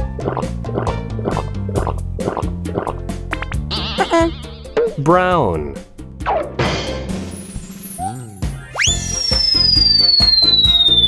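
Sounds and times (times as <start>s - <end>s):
wavering cartoon sound effect: 3.8s - 4.9s.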